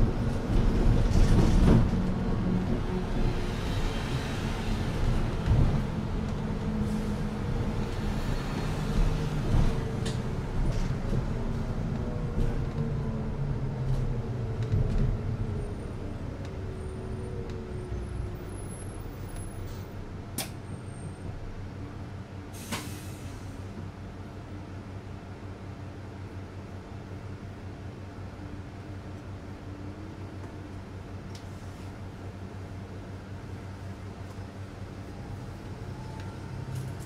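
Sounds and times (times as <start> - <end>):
bus engine idling hum: 0.0 - 37.0
air hiss from bus: 22.5 - 23.8.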